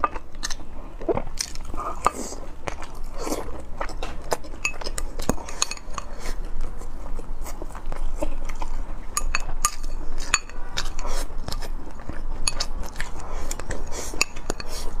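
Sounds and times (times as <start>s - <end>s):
close-up chewing: 0.0s - 15.0s.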